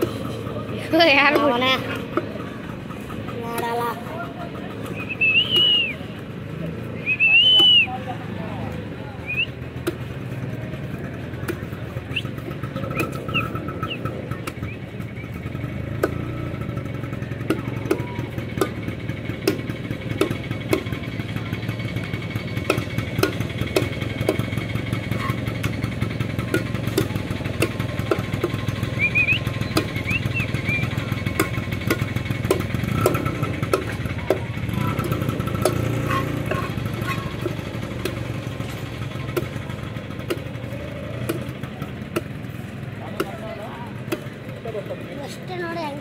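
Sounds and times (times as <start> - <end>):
low engine-like drone: 0.0 - 46.0
cleaver chopping on wooden block: 19.4 - 21.0, 22.6 - 24.5, 26.4 - 28.6, 31.3 - 38.3, 40.2 - 40.5, 41.2 - 41.5.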